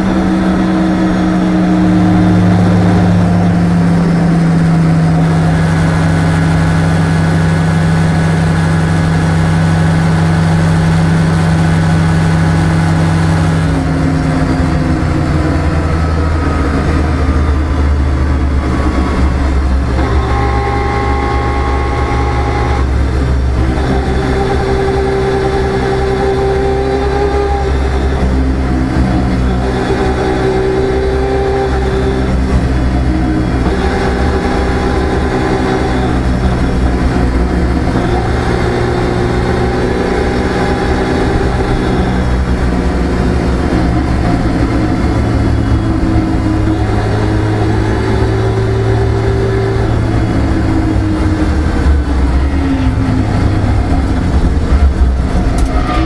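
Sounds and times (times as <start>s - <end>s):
car engine running: 0.0s - 56.0s
road and tyre rumble: 0.0s - 56.0s.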